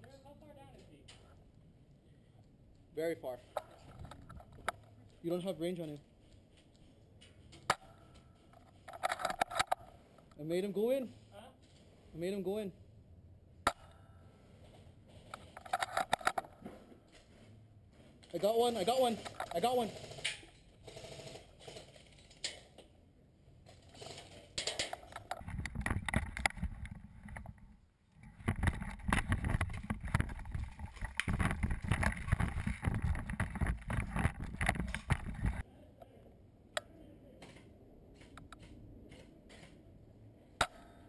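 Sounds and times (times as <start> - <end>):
camera movement rumbling: 3.5 - 10.4, 14.6 - 20.6, 23.6 - 35.7
rapid knocks and clatters: 28.3 - 35.6.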